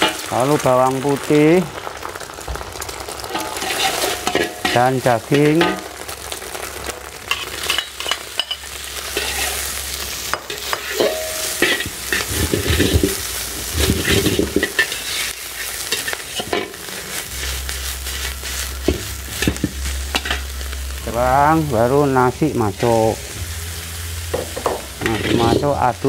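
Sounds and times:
food sizzling in a wok: 0.0s - 26.0s
metal spatula scraping pan: 3.3s - 4.8s, 7.3s - 9.7s, 10.4s - 20.5s, 22.8s - 25.8s.

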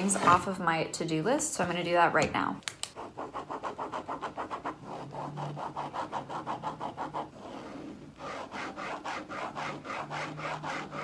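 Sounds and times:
pen scribbling on paper: 3.0s - 11.0s.

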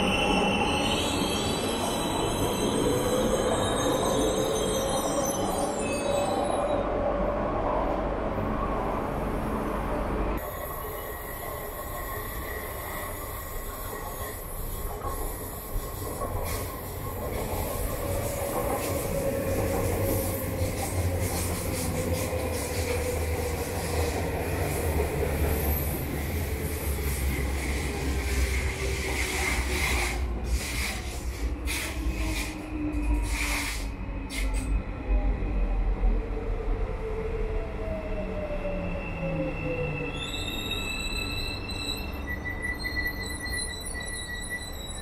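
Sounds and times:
train wheels squealing: 0.0s - 7.1s, 10.4s - 35.4s, 37.8s - 45.0s
train wheels rumbling on rail: 9.2s - 36.3s.

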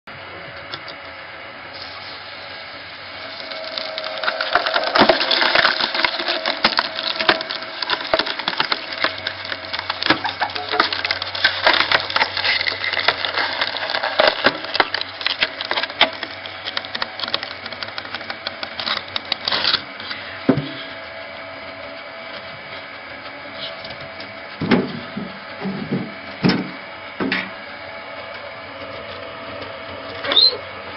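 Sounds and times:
log splitter machine hum: 0.1s - 30.9s
wood cracking and splintering: 3.1s - 20.8s.

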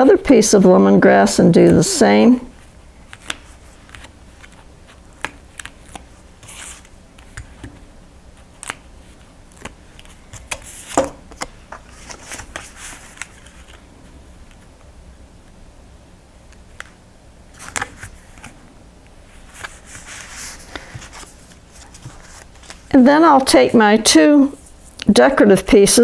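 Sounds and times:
paper rustling: 2.6s - 14.7s, 19.3s - 23.6s.

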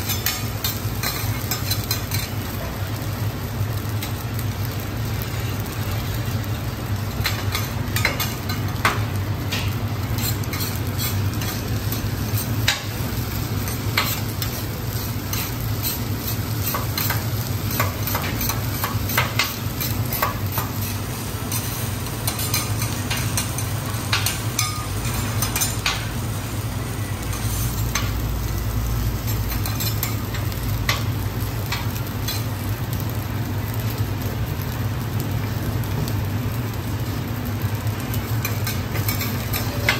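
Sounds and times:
metal spatulas clacking and scraping: 0.0s - 2.3s, 38.4s - 39.9s
rice sizzling on griddle: 0.0s - 39.9s.

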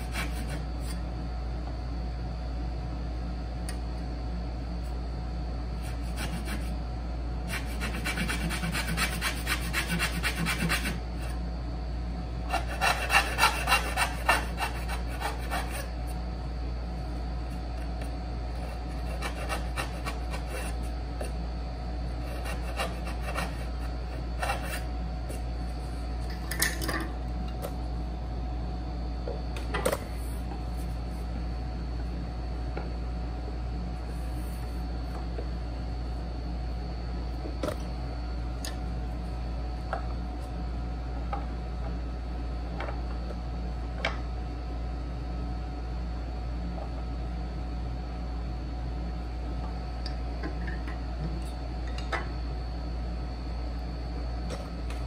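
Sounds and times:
saw strokes on wood: 12.5s - 15.8s.

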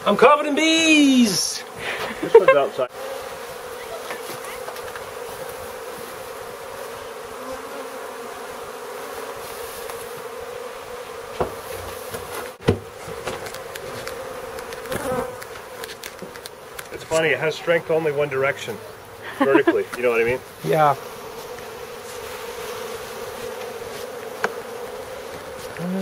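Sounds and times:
bees buzzing: 0.0s - 26.0s
sharp knocks: 11.4s - 14.1s.

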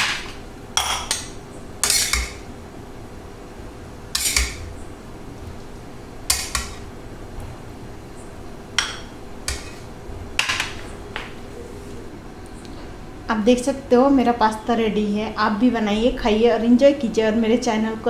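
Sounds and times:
metal spoon scraping a pan: 0.8s - 2.4s, 4.1s - 4.7s, 6.3s - 6.9s, 8.8s - 9.9s.

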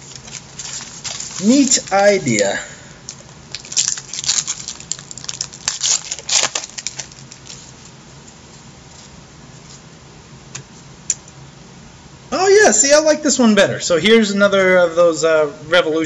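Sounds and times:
card pack wrapper crinkling: 0.0s - 7.9s.

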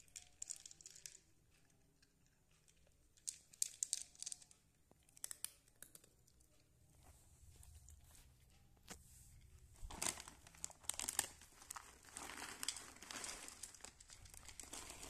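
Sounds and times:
cat crunching dry kibble: 9.9s - 15.0s.

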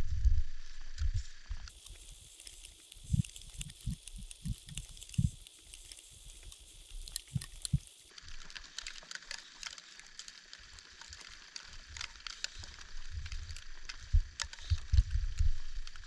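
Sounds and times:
snow crunching: 1.7s - 8.2s.

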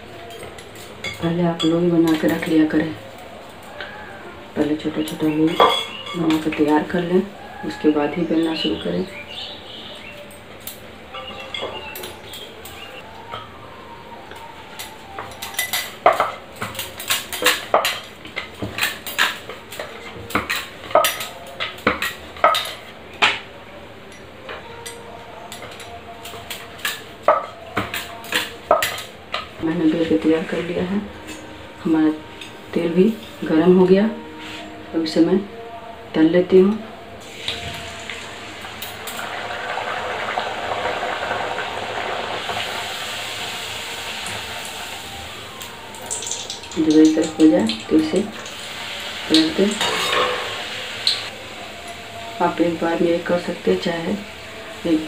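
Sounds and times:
bread deep-frying in oil: 37.2s - 55.0s.

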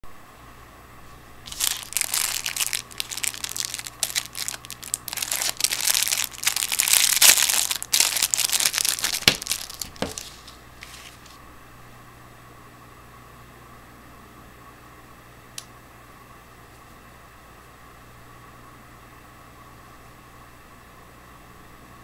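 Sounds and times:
plastic packaging crinkling: 1.5s - 11.4s.

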